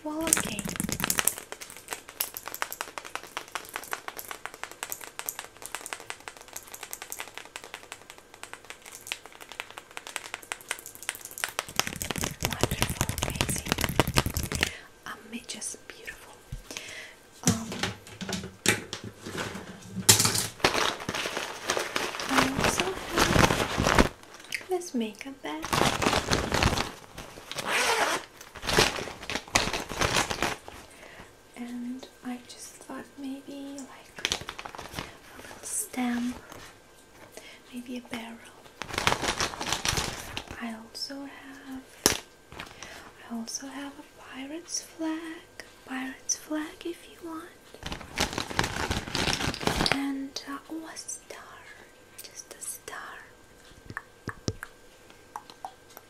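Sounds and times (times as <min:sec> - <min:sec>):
zipper being pulled open: 0:27.5 - 0:28.3.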